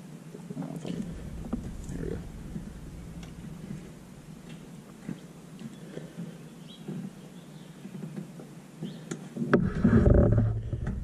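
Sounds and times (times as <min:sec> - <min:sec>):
loud knock: 0:01.0 - 0:05.2.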